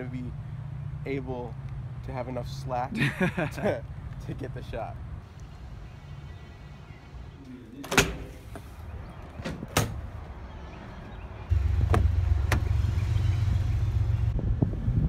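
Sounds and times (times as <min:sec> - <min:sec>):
car engine rumble: 0:00.0 - 0:15.0
car door knocks and clicks: 0:11.8 - 0:12.7.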